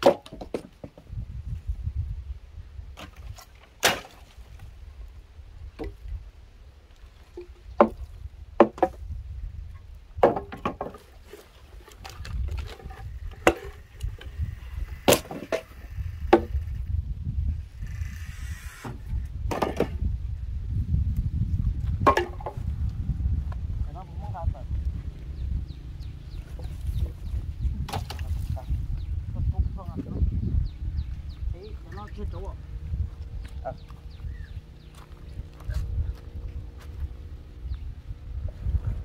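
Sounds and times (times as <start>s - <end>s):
wood clunking onto woodpile: 0.0s - 1.1s, 3.0s - 4.6s, 7.4s - 9.0s, 10.2s - 16.8s, 18.8s - 20.1s, 21.8s - 22.6s, 27.8s - 28.7s.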